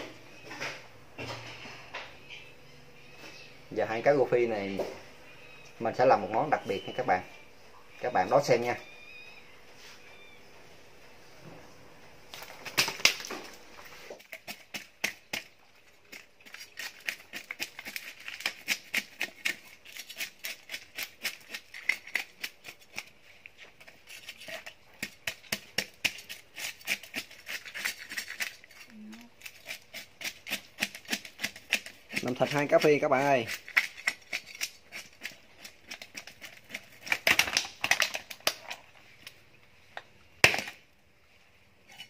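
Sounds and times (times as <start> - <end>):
knife scraping fish scales: 16.1 - 37.3.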